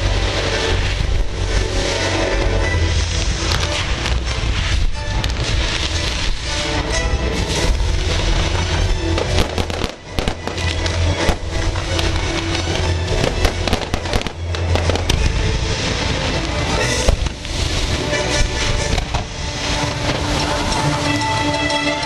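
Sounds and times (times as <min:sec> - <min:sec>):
fireworks bursting and crackling: 0:00.0 - 0:22.0
loud show music: 0:00.0 - 0:22.0.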